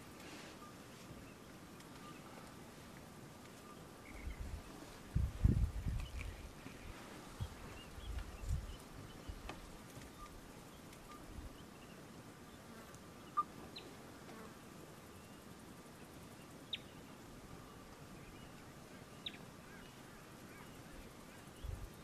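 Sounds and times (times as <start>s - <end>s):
insects buzzing: 0.0s - 22.0s.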